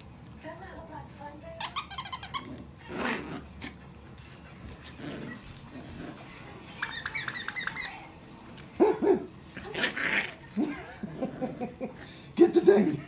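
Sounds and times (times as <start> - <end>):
high squeaks: 6.8 - 8.1.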